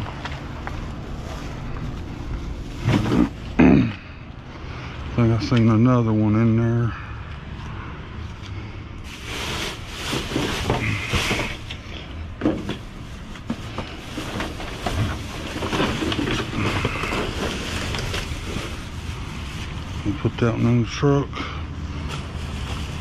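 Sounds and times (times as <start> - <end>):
plastic bags and cardboard crinkling: 0.0 - 3.9, 9.0 - 23.0.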